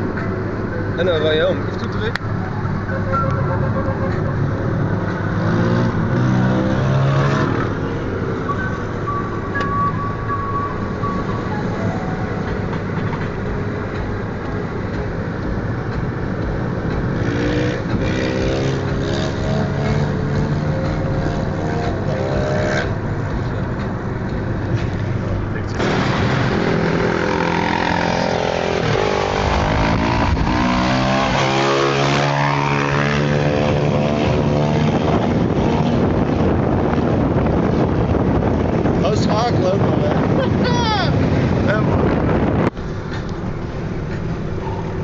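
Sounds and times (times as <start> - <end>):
road noise inside moving car: 0.0 - 45.0
motorcycle engines revving: 0.9 - 8.4, 15.9 - 45.0.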